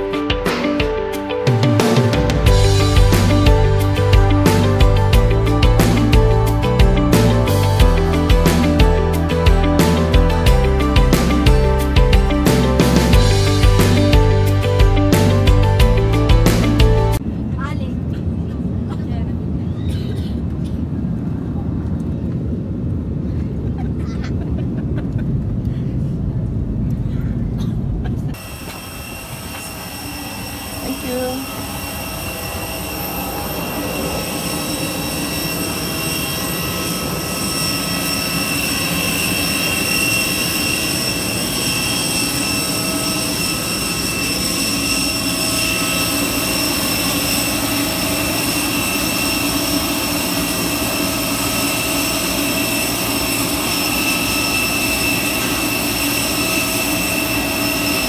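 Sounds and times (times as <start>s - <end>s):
airliner cabin rumble: 17.1s - 57.9s
jet turbine whine: 20.4s - 58.0s.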